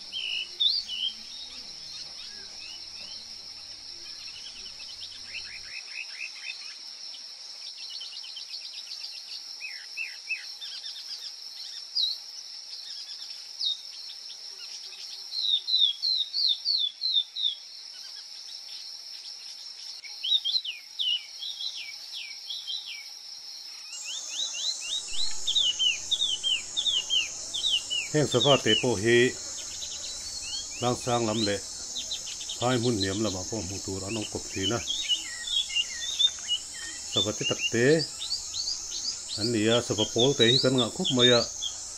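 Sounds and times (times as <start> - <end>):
insects droning: 0.0 - 41.9
songbird chirping: 0.0 - 41.9
higher wavering insect drone: 23.9 - 41.9.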